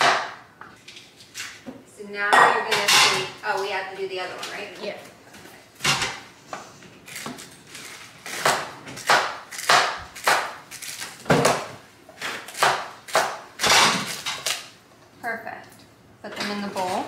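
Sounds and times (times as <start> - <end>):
knife chopping celery on board: 8.3 - 14.1.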